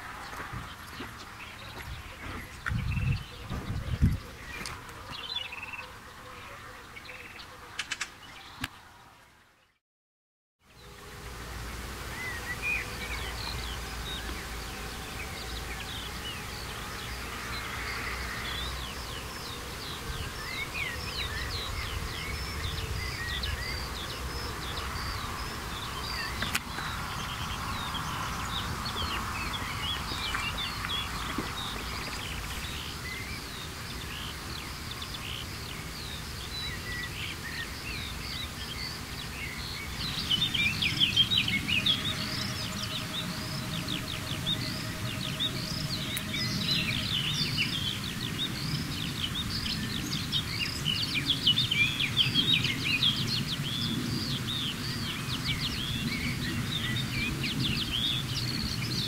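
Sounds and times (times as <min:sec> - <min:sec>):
birds singing: 0:00.0 - 0:09.8, 0:10.6 - 0:59.0
sharp click: 0:07.8 - 0:08.8.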